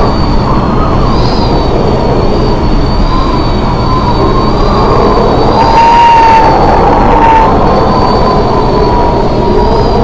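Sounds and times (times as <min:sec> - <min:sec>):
high-pitched wind whistle: 0:00.0 - 0:10.0
storm wind buffeting microphone: 0:00.0 - 0:10.0.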